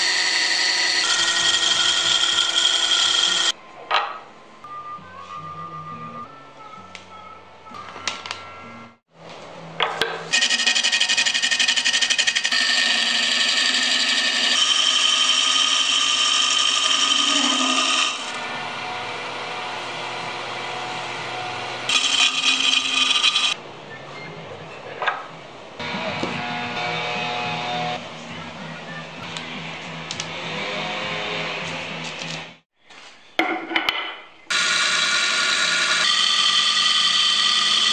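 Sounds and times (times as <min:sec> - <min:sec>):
wood lathe tool scraping: 0:00.0 - 0:03.6, 0:10.3 - 0:23.6, 0:34.5 - 0:37.9.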